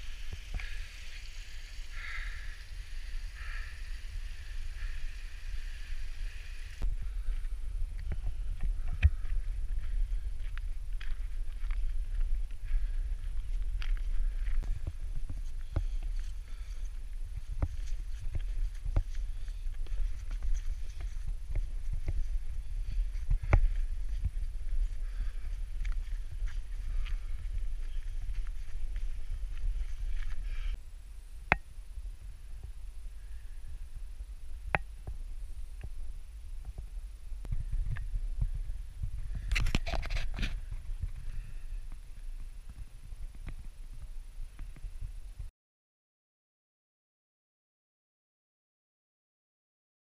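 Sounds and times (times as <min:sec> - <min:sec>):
wind rumbling on microphone: 0:00.0 - 0:45.5
footsteps on stony ground: 0:06.8 - 0:30.8.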